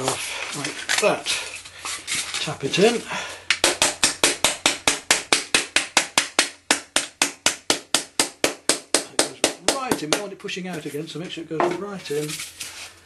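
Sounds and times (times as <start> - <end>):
small hammer tapping: 3.5 - 10.3.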